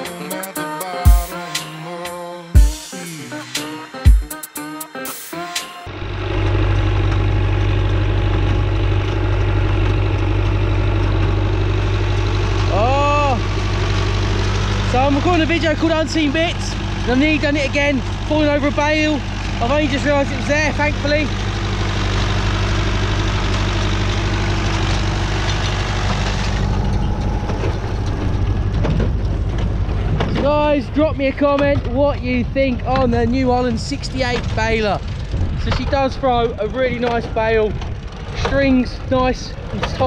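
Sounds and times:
higher-pitched noise: 0.0 - 6.1
tractor diesel engine running: 0.0 - 40.0
baler mechanical clatter: 6.4 - 40.0.

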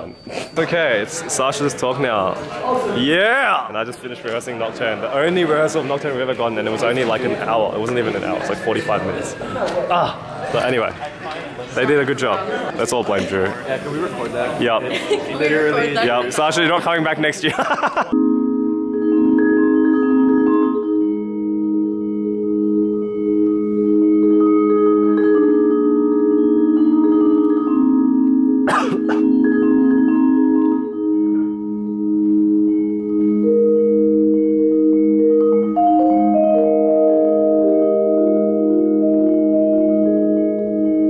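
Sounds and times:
vibraphone chords: 17.9 - 41.0.

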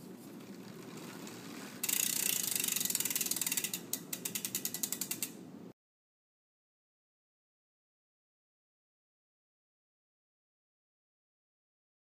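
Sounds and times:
bicycle freewheel clicking: 0.4 - 5.4.

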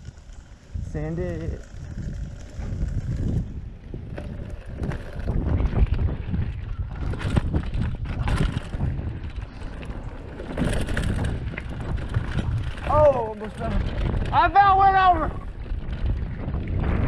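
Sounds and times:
bike rattling and knocking: 0.0 - 17.0
tyres rumbling over dirt: 0.0 - 17.0
wind buffeting microphone: 0.0 - 17.0.

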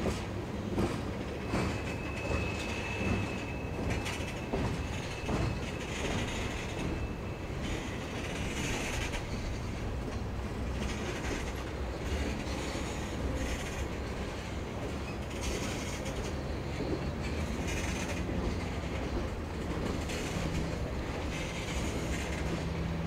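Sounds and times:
freight train rumble and wheel clatter: 0.0 - 23.0
hissing wheel squeal: 1.4 - 9.5.

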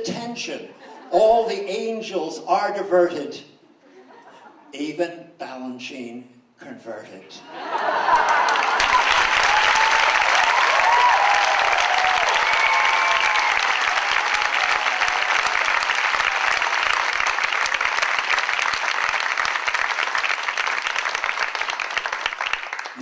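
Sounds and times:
audience applauding: 7.6 - 23.0.

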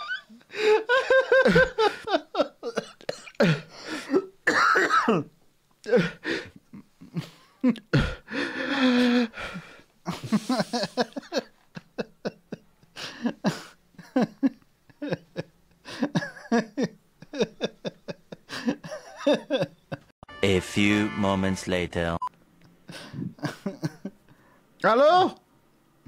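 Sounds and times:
man coughing and wheezing: 2.6 - 5.3, 5.9 - 8.3.

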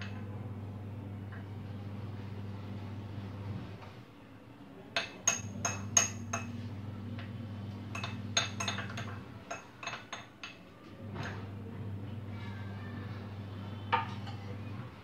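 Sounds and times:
spoon clinking against glass bowl: 5.0 - 6.5, 7.9 - 10.6.

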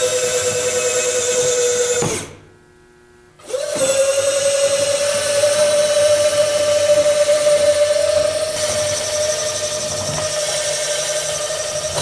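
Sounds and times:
small electric motors whining: 3.4 - 12.0.

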